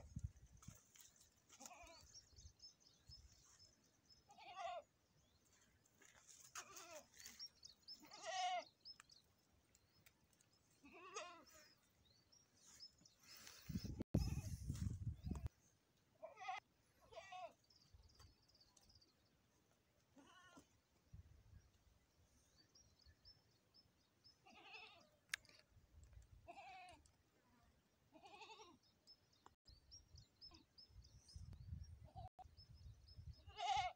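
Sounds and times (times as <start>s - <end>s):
goat bleating: 1.5s - 2.1s, 4.3s - 4.9s, 6.5s - 7.2s, 8.0s - 8.7s, 10.8s - 11.8s, 16.2s - 17.6s, 20.2s - 20.7s, 24.4s - 25.1s, 26.5s - 27.0s, 28.1s - 28.8s, 33.5s - 33.9s.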